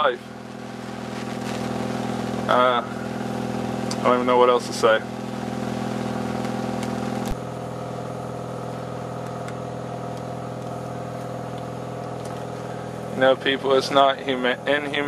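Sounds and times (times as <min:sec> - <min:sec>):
boat engine droning: 0:00.0 - 0:15.0.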